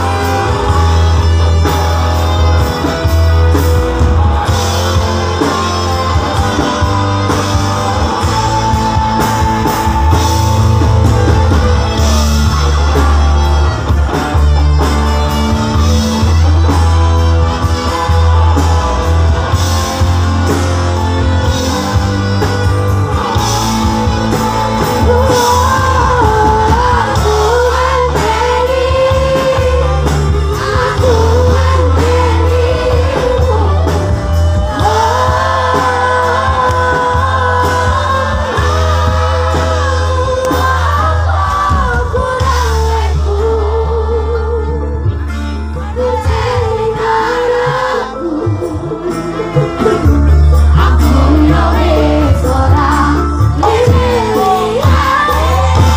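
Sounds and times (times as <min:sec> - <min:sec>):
live band playing amplified music: 0:00.0 - 0:55.9
woman singing: 0:24.0 - 0:45.2, 0:45.8 - 0:55.9.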